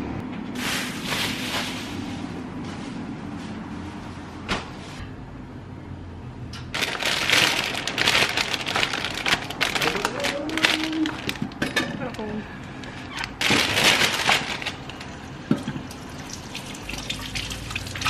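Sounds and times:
packaging crackling and rustling: 6.7s - 11.6s, 13.2s - 15.1s.

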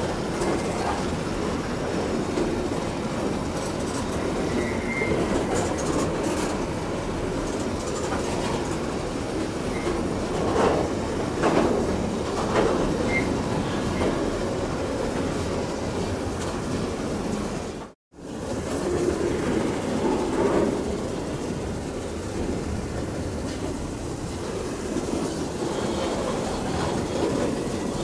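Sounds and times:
train wheels rumbling on rails: 0.0s - 28.0s
faint wheel squeals: 4.4s - 5.3s.

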